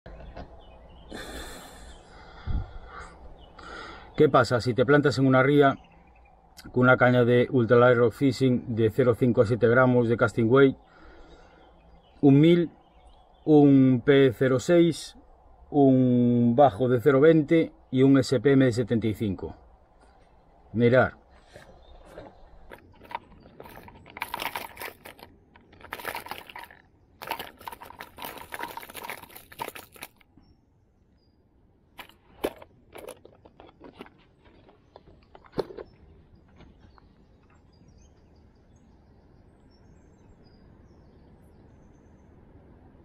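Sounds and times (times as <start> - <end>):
bird chirps: 0.1 - 15.9, 19.6 - 24.1, 34.4 - 42.7
faint steady hush: 1.0 - 4.3
plastic tackle box rustling: 21.4 - 30.2, 32.0 - 35.9.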